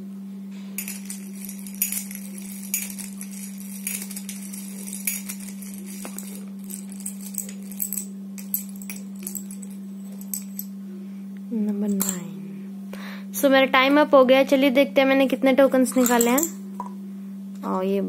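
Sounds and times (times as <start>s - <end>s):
steady low hum: 0.0s - 17.8s
spoon scooping rattling beans: 0.8s - 10.7s, 15.9s - 16.6s.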